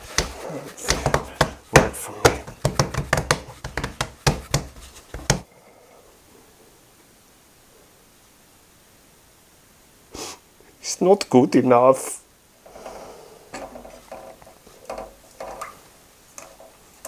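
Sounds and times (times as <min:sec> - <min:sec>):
dough thumping on wooden board: 0:00.0 - 0:05.4.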